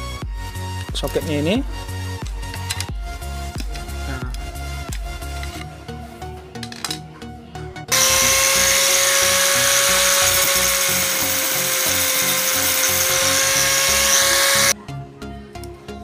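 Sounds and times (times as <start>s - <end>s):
angle grinder cutting steel: 7.9s - 14.8s.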